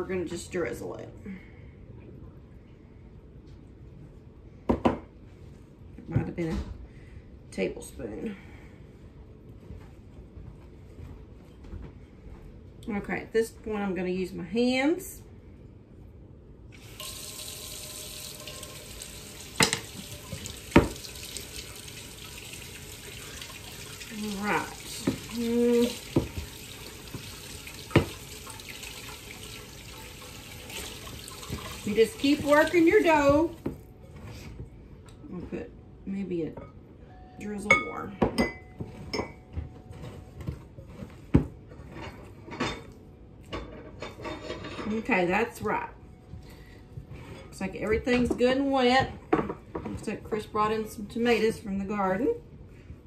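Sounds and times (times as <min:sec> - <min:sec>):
glass bowl clinks and knocks: 0:37.7 - 0:39.5.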